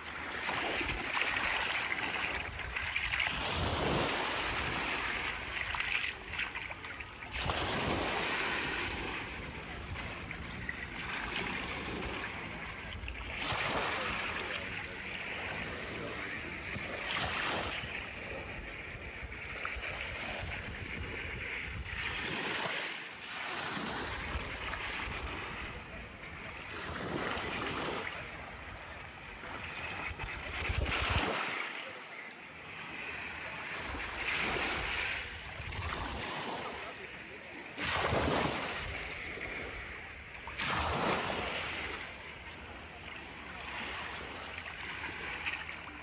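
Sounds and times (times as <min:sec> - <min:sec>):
small waves washing onto sand: 0:00.0 - 0:46.0.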